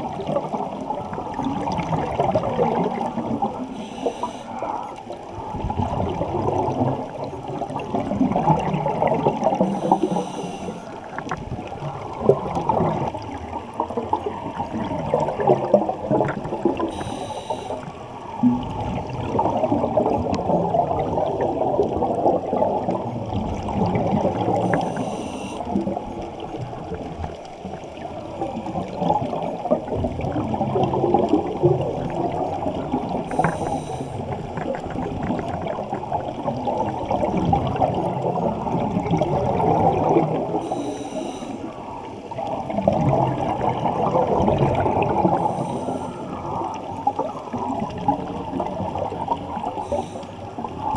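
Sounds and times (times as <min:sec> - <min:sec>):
underwater bubbling rumble: 0:00.0 - 0:50.9
scuba regulator hiss: 0:03.8 - 0:04.8, 0:09.7 - 0:10.9, 0:16.9 - 0:17.9, 0:24.6 - 0:25.7, 0:33.3 - 0:34.2, 0:40.6 - 0:41.8, 0:45.4 - 0:46.3, 0:49.8 - 0:50.4.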